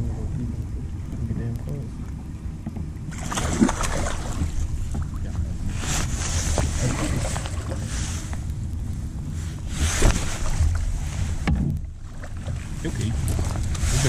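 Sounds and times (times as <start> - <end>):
steady low hum: 0.0 - 14.0
wind on microphone: 0.0 - 14.0
jacket fabric rustling: 5.7 - 8.3, 9.4 - 11.4.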